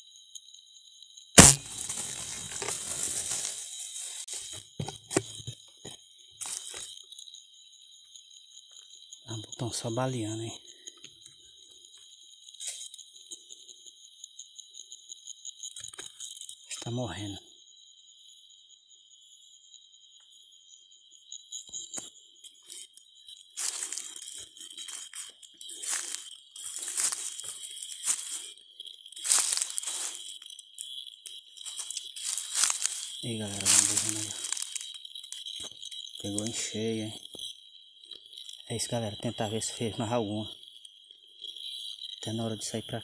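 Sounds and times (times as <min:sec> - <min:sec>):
high-pitched insect drone: 0:00.0 - 0:43.0
footsteps crunching dry leaves: 0:01.4 - 0:04.6, 0:23.6 - 0:28.5, 0:29.2 - 0:30.3, 0:31.7 - 0:35.0.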